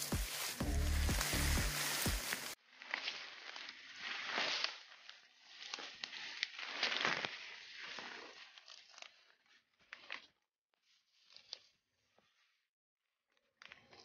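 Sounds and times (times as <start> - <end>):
footsteps through dry leaves: 0.0 - 8.3
twigs crackling and snapping: 0.0 - 9.2.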